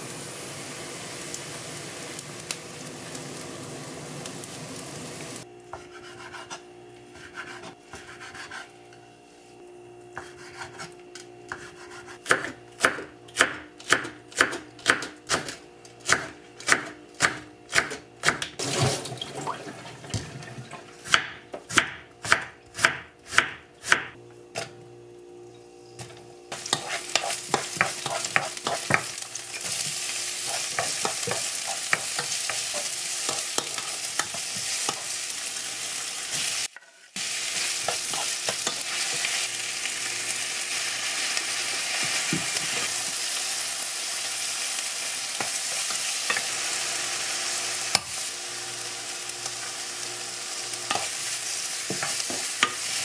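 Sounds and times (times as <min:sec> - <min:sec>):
food sizzling in a frying pan: 0:00.0 - 0:05.5, 0:26.5 - 0:53.0
knife chopping on wooden board: 0:11.5 - 0:18.5, 0:21.0 - 0:24.7, 0:26.7 - 0:29.1
wooden spoon scraping a pan: 0:26.6 - 0:29.0, 0:29.6 - 0:35.1, 0:36.3 - 0:39.3.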